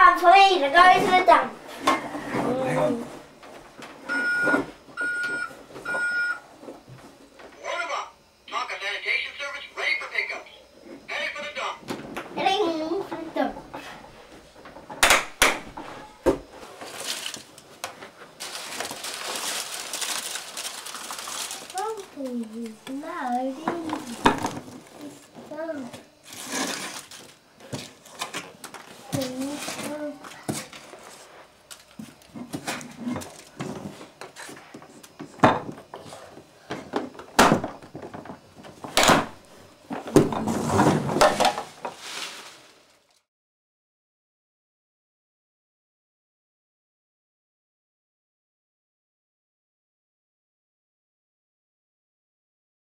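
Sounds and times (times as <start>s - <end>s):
plastic toy truck knocks: 14.9s - 16.4s.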